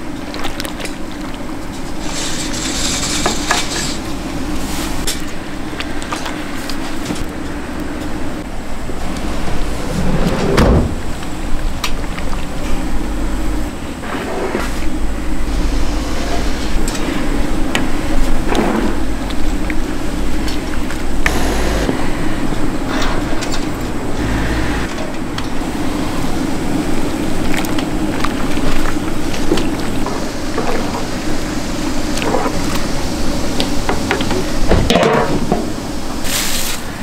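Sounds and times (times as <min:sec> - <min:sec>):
steady hum: 0:00.0 - 0:37.0
low rumble: 0:02.8 - 0:13.9, 0:14.7 - 0:24.9.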